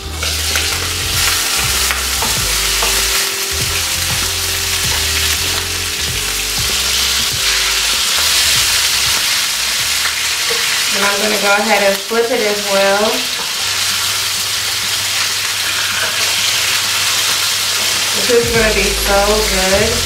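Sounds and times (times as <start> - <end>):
metal utensil scraping a pan: 0.0 - 12.0
cutlets sizzling in a pan: 0.0 - 20.0.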